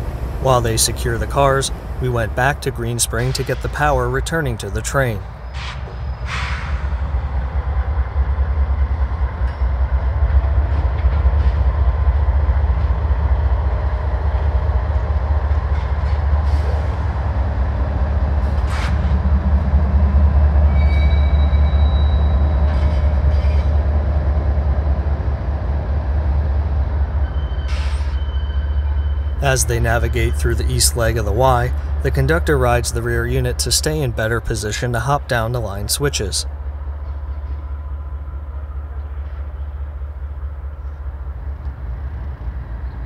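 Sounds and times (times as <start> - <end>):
locomotive engine rumble: 0.0 - 43.0
brief high squeals: 20.7 - 22.4.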